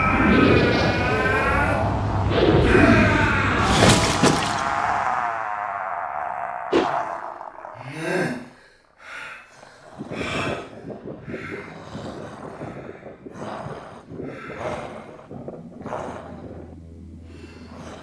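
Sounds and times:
monster snorting breaths: 8.6s - 18.0s
low steady hum: 15.3s - 18.0s.

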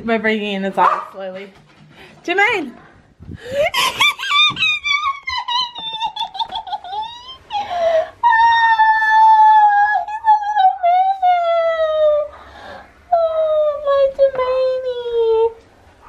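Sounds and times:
woman crying with joy: 3.4s - 12.3s.

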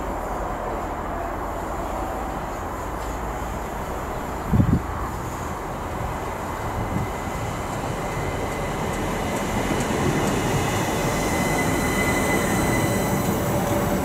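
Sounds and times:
electric train rumbling: 0.0s - 14.0s
brakes squealing: 5.2s - 14.0s.

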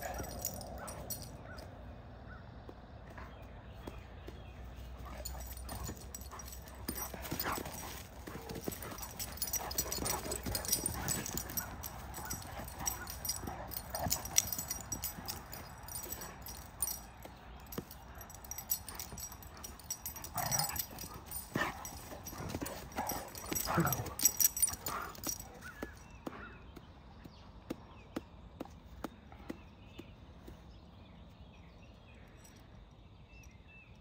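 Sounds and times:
dogs scuffling on grass: 4.4s - 17.0s.

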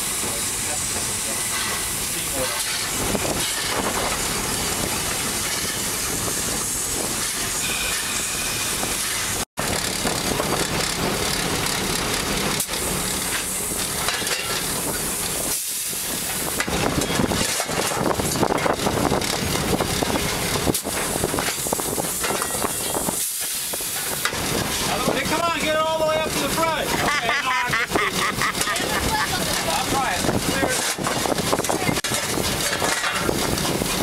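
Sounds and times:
locomotive running: 0.0s - 34.0s
steam hissing: 0.0s - 34.0s
shovel scraping coal: 15.6s - 18.4s, 30.6s - 34.0s.

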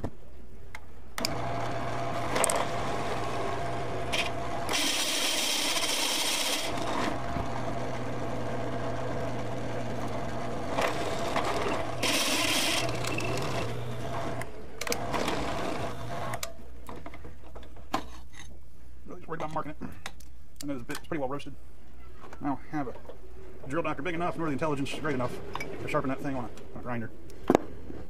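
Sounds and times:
milling machine motor running: 1.2s - 16.4s
high-pitched metal cutting noise: 2.4s - 7.2s, 10.7s - 14.4s.

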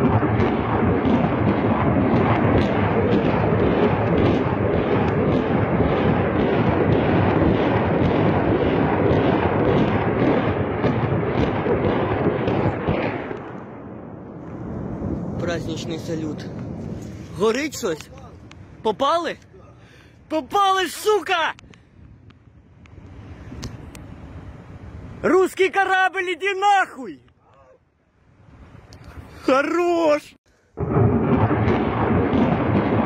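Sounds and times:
sharp cracks: 0.0s - 19.5s, 30.8s - 33.0s
rocket fire rumble: 0.0s - 20.4s, 21.5s - 25.3s, 30.7s - 33.0s.

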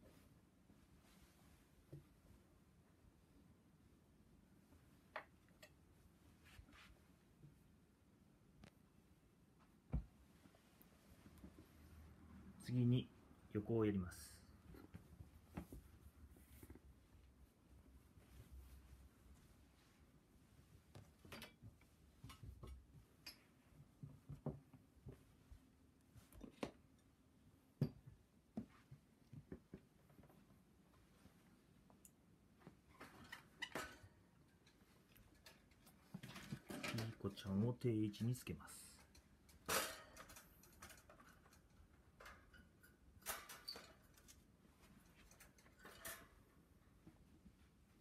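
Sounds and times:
cloth towels rustling: 0.0s - 3.4s, 5.9s - 7.8s, 14.6s - 26.5s
birdcage clicks and rattles: 39.0s - 46.5s.

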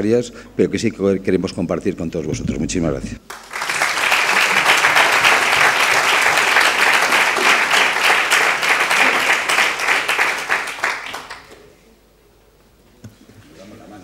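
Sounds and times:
crowd applauding: 3.2s - 11.7s.

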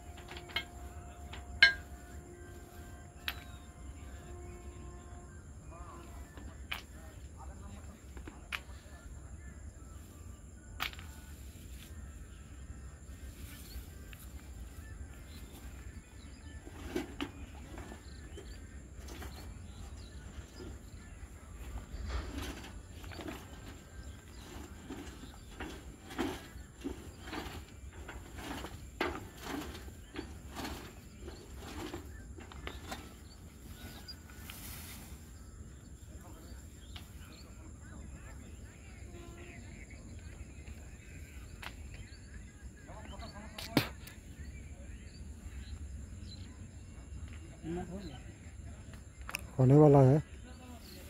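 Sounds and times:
metal signpost scraping knocks: 0.0s - 5.2s, 21.6s - 34.2s
tall grass rustling: 0.0s - 5.4s, 9.8s - 37.8s.

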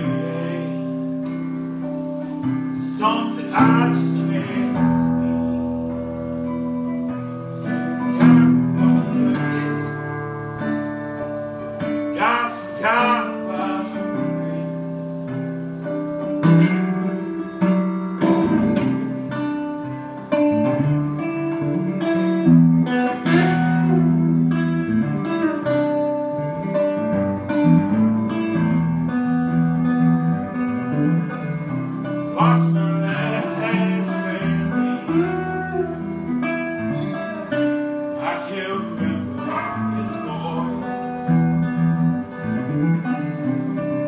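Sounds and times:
acoustic guitar playing: 0.0s - 44.0s.

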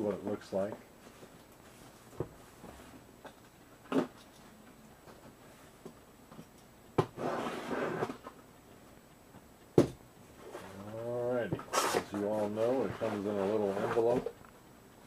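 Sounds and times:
knock on box: 9.8s - 10.0s
packing tape and cardboard tearing: 11.7s - 12.1s.

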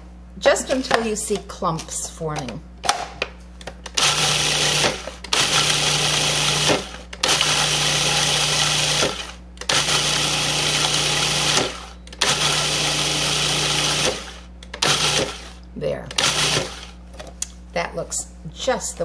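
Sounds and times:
food processor motor pulsing: 3.9s - 17.0s.

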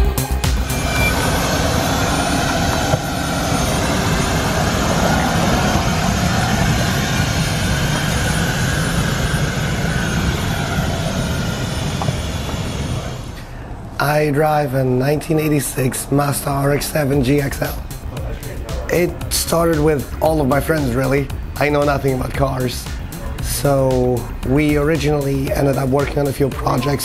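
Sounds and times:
faint wavering whine: 0.0s - 19.2s.

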